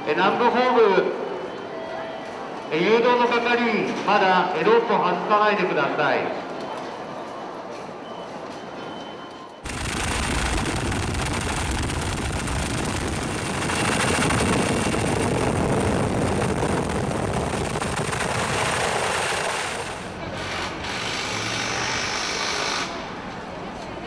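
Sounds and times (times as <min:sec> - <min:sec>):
low hum: 0:09.7 - 0:20.1
high turbine whine: 0:09.7 - 0:22.9
helicopter rotor chop: 0:09.7 - 0:23.0.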